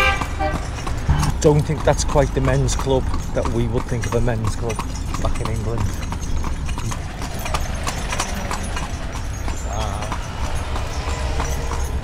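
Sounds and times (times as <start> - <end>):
horse hooves clip-clopping on pavement: 0.0 - 12.0
light jingling: 0.0 - 12.0.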